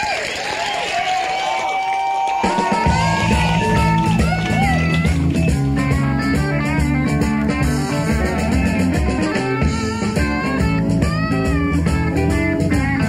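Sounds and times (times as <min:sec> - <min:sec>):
drum kit: 0:02.3 - 0:13.0
electric guitar with bent notes: 0:02.5 - 0:13.0
bass line: 0:02.6 - 0:13.0.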